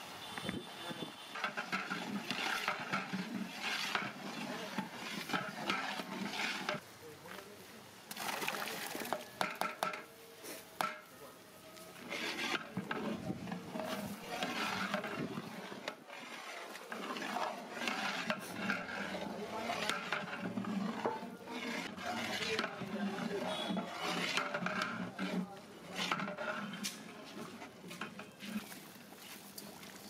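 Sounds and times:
metal ladle stirring thick gravy: 1.2s - 6.8s, 11.8s - 28.9s.

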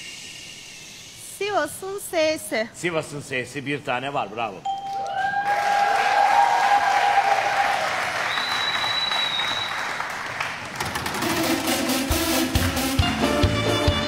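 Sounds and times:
audience applauding: 5.0s - 11.5s
high whistle: 8.2s - 10.0s.

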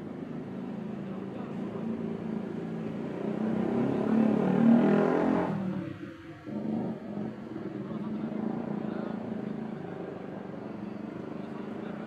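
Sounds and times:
vehicle engine passing: 3.1s - 7.5s.

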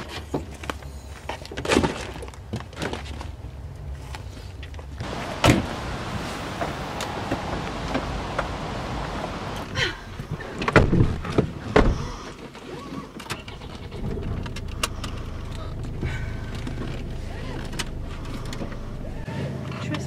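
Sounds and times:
car doors slamming: 5.0s - 9.6s, 10.6s - 12.3s.

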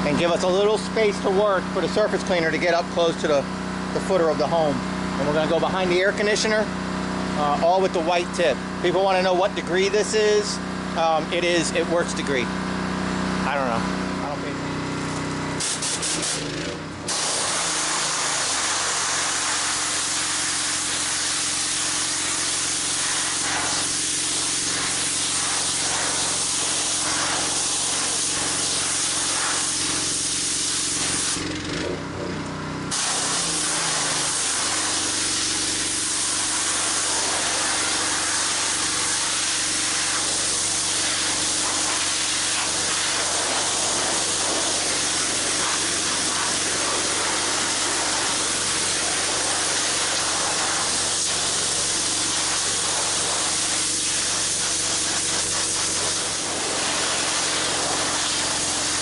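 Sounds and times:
pressure washer engine running: 0.0s - 59.0s
pressure washer spray hiss: 15.6s - 31.6s, 32.9s - 59.0s.

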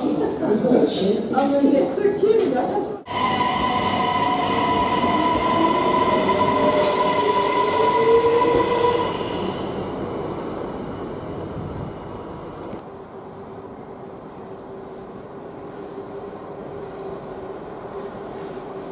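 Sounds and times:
steady high tone: 3.1s - 9.9s.

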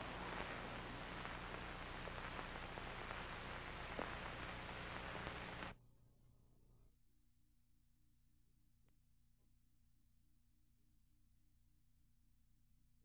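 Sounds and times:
videotape hiss: 0.0s - 5.8s.

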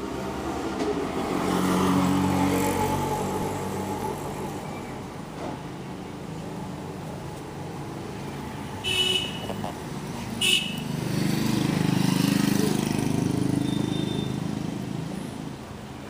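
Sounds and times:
vehicle engine passing: 9.4s - 15.5s.

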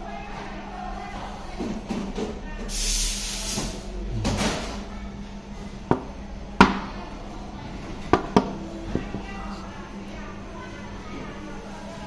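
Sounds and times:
steady low hum: 3.7s - 12.0s.

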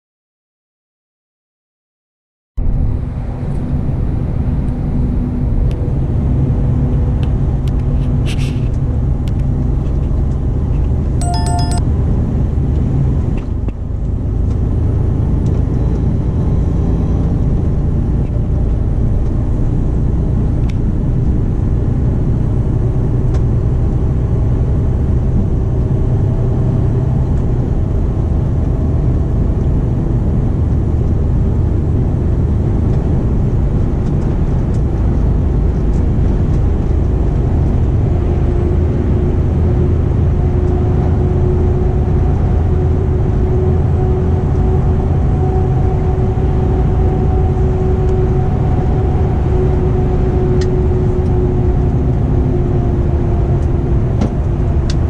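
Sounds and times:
truck engine and road noise: 2.6s - 55.0s
electronic chime: 11.2s - 11.8s.

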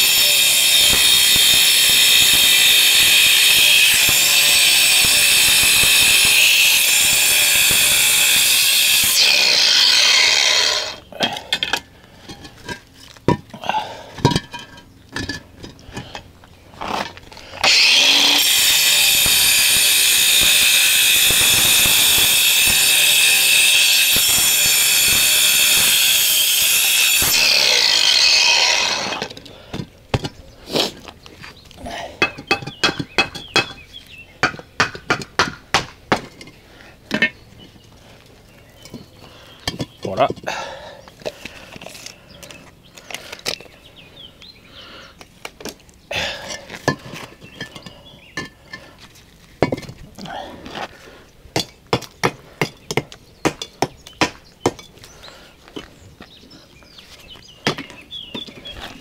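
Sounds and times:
angle grinder cutting concrete: 0.0s - 11.1s, 17.6s - 29.4s.

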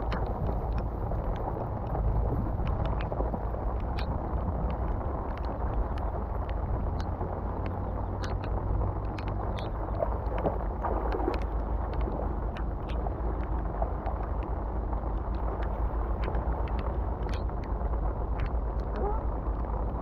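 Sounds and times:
light rain on water: 0.0s - 20.0s
wind rumble on microphone: 0.0s - 20.0s
small clicks: 2.6s - 20.0s.

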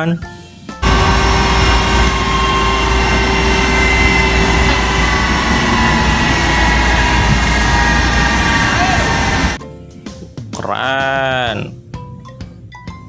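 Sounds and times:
deep rumble: 0.8s - 9.6s
jet turbine whine: 0.8s - 9.6s.

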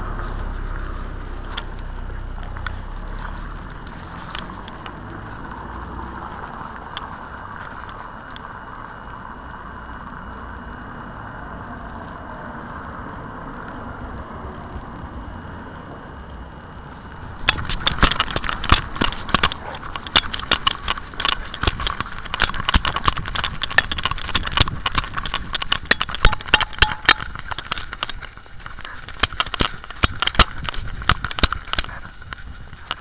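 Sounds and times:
camera knocking and rattling: 0.1s - 8.4s, 17.3s - 33.0s.

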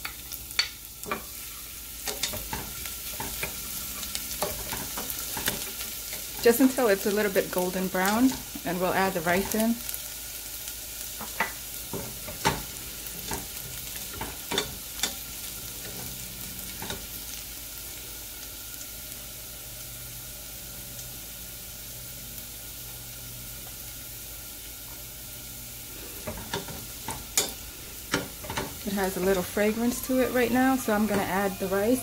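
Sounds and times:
garlic sizzling in hot oil: 0.0s - 32.0s.

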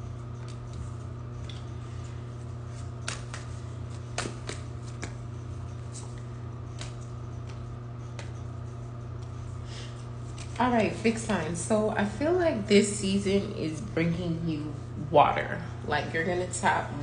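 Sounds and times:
cards shuffling: 2.7s - 5.2s, 5.8s - 8.4s, 10.2s - 10.6s.

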